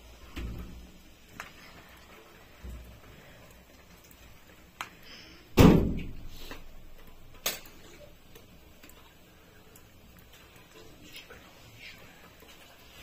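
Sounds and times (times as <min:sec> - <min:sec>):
loud heavy thud: 0:05.6 - 0:06.2.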